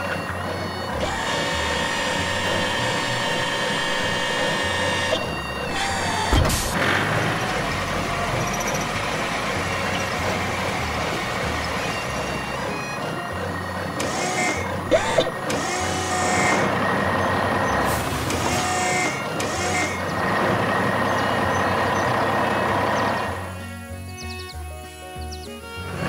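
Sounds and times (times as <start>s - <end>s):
mechanical whirring and hissing: 0.0s - 22.1s
cartoon engine running: 0.0s - 26.0s
sharp clicks: 0.7s - 17.3s, 18.2s - 22.2s.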